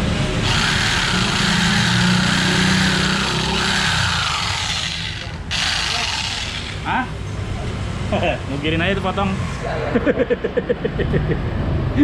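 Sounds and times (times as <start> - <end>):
electric jigsaw motor whine: 0.4 - 6.9.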